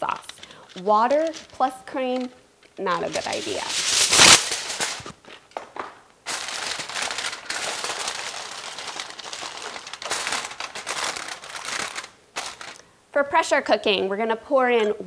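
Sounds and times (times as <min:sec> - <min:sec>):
foil crinkling around a pan: 0:00.0 - 0:05.5, 0:06.3 - 0:12.8
aluminum foil rustling: 0:00.0 - 0:12.8.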